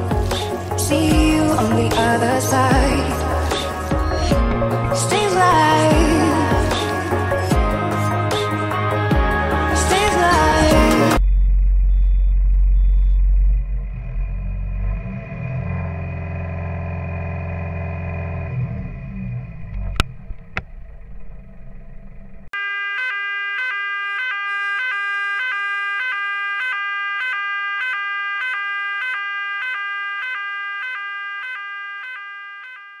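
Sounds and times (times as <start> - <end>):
tractor diesel engine rumbling: 0.0 - 22.6
electronic beeping tune: 11.0 - 13.8.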